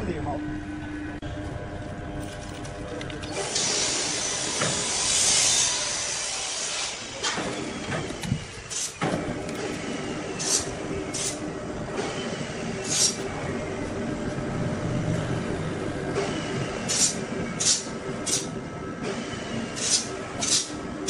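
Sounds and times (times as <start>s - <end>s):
sawmill machinery hum: 0.0s - 21.0s
short hissing bursts: 3.4s - 7.0s
loud hiss: 3.4s - 7.7s.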